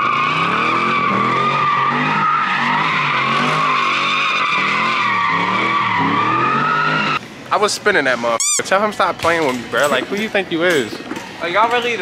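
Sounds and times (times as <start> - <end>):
car engine revving: 0.0 - 7.2
tires squealing: 0.0 - 7.2.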